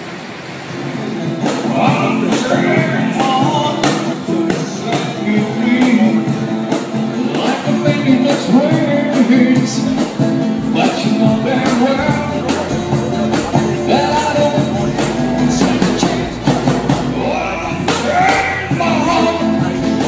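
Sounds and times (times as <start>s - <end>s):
acoustic guitar strumming: 0.0s - 20.0s
cajon beat: 0.7s - 20.0s
man singing into a microphone: 1.4s - 20.0s.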